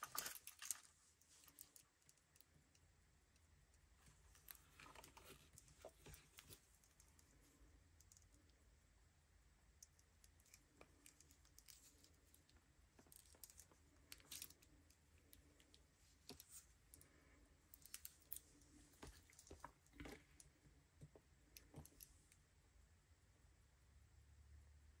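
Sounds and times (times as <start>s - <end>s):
watch strap clicks and rustles: 0.0s - 2.4s, 10.2s - 16.7s, 17.8s - 20.1s.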